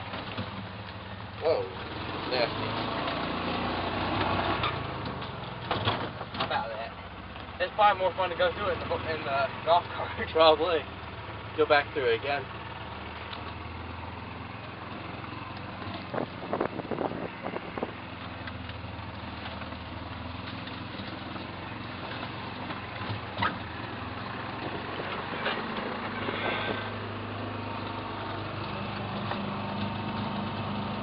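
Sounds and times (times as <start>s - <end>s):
golf cart engine running: 0.0s - 31.0s
sharp cracks and knocks: 4.2s - 6.6s.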